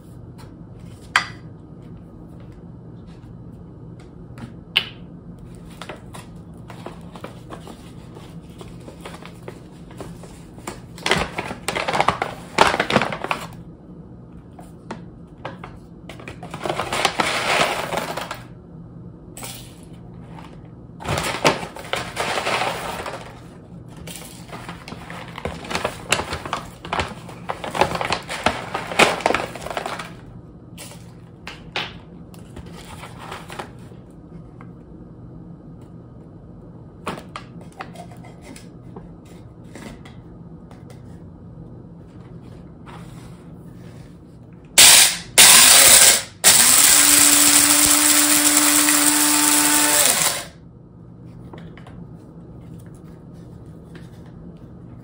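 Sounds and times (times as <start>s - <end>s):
paper bag crinkling: 21.0s - 23.6s, 24.2s - 30.3s.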